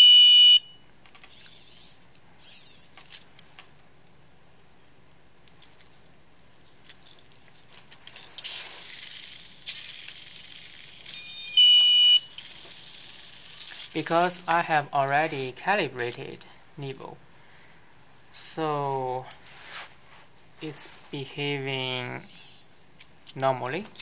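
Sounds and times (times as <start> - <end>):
high buzzer beep: 0.0 - 0.8, 11.2 - 12.3
servos whirring: 1.2 - 3.0.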